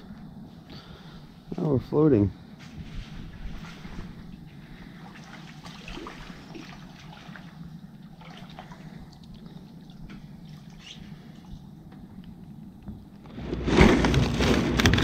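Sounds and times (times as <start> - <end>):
water lapping against boat hull: 3.4 - 11.9
light water splashes: 4.7 - 11.7.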